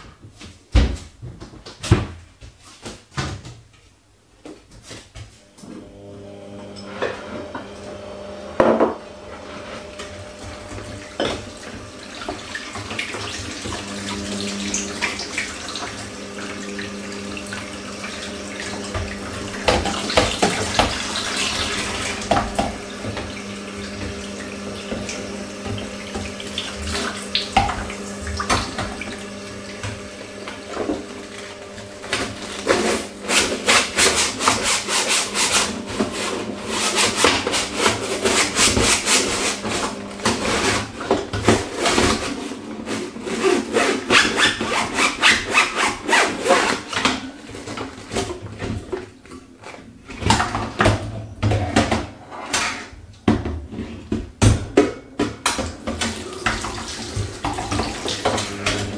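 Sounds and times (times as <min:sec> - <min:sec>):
tap water running into steel sink: 0:10.0 - 0:31.2, 0:55.2 - 0:58.9
brush scrubbing wire rack: 0:32.2 - 0:40.8, 0:41.8 - 0:46.9.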